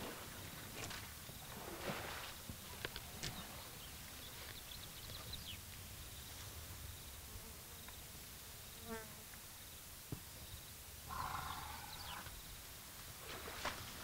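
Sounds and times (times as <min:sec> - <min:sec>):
faint bird chirps: 0:02.7 - 0:06.5, 0:09.6 - 0:12.6.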